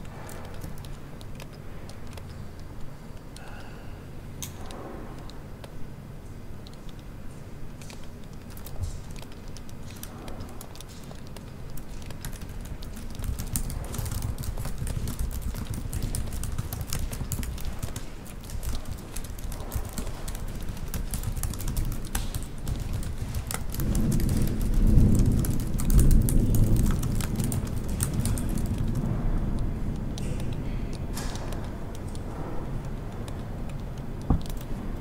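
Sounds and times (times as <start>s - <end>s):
computer keyboard typing: 7.7s - 29.1s, 30.0s - 35.0s.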